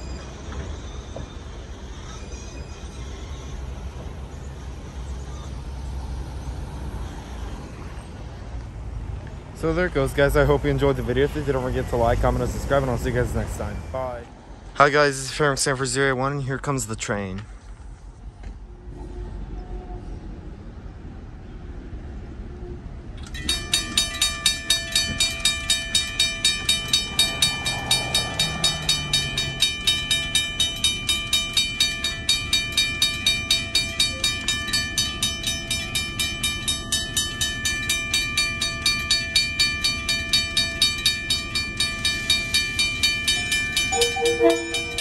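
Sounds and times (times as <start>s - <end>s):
crossing bell ringing: 10.8s - 14.3s, 23.2s - 45.0s.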